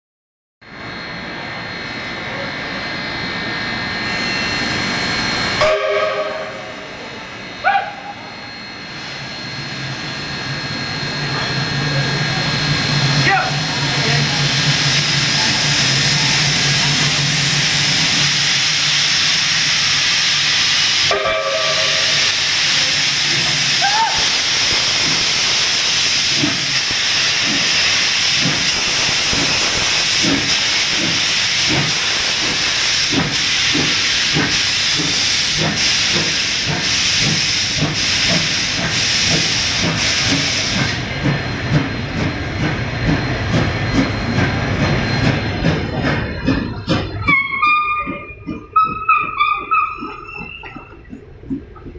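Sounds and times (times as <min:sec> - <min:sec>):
steam hissing: 0:04.0 - 0:51.8
steam locomotive whistle: 0:05.6 - 0:08.6, 0:20.7 - 0:27.3, 0:47.2 - 0:50.7
locomotive exhaust beats: 0:26.2 - 0:51.9.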